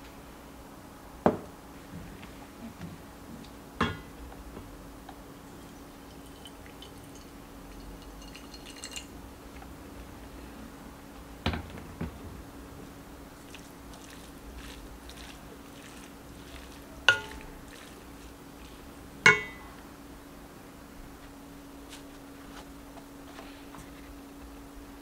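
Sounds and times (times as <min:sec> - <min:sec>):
steady low hum: 0:00.0 - 0:25.0
metal pot clinking: 0:05.6 - 0:09.1, 0:17.1 - 0:17.5, 0:19.3 - 0:19.7.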